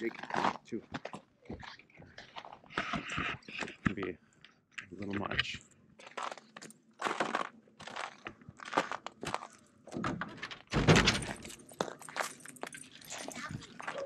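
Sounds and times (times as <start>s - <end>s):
latch clicks and knocks: 10.0s - 11.6s.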